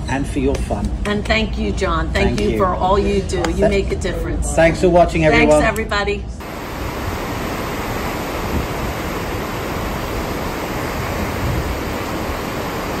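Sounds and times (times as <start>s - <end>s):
wind: 0.0s - 13.0s
water rushing in ship's wake: 6.4s - 13.0s.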